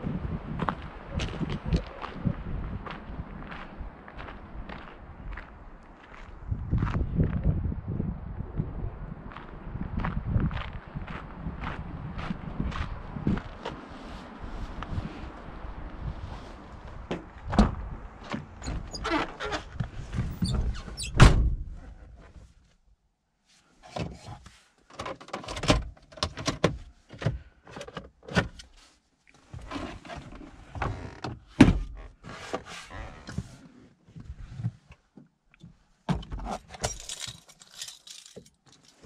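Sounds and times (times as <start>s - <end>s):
car door shutting: 20.4s - 21.7s.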